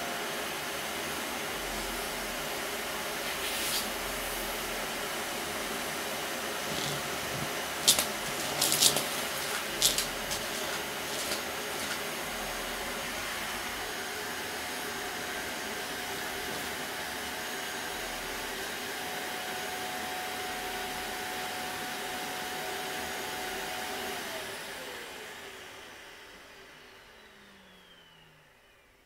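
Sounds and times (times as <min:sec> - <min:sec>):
vacuum cleaner whining: 0:00.0 - 0:29.0.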